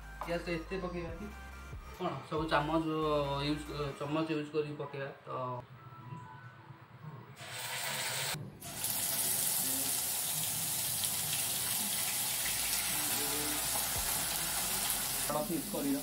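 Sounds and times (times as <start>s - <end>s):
onion sizzling in hot oil: 7.4s - 16.0s.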